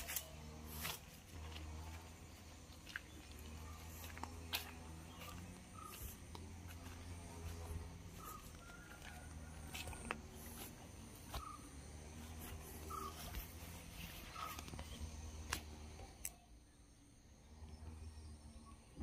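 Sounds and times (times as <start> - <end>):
walking footsteps: 0.0 - 15.9
steady low hum: 0.0 - 19.0.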